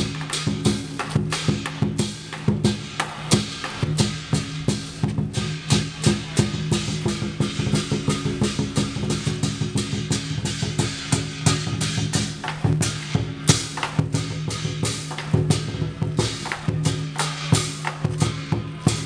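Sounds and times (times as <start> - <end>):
large drum beaten fast: 0.0 - 19.0.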